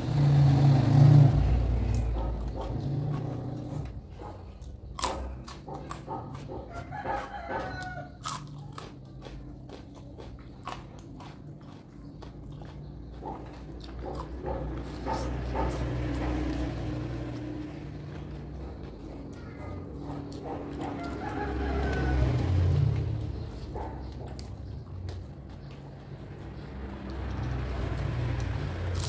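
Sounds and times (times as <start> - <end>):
chewing and crunching vegetables: 0.0 - 29.0
rooster crowing: 6.6 - 8.5, 20.8 - 23.1.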